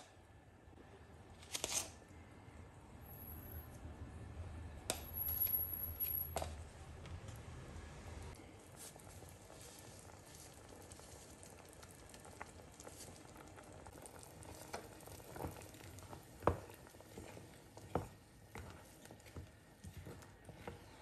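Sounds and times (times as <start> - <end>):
chicken bubbling and sizzling in pot: 7.4 - 21.0.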